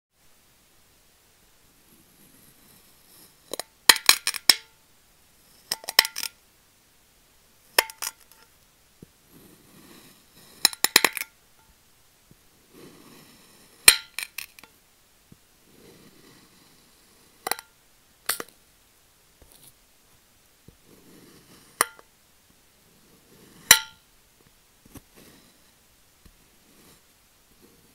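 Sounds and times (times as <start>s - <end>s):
blade clinking on glass plate: 23.7s - 24.0s.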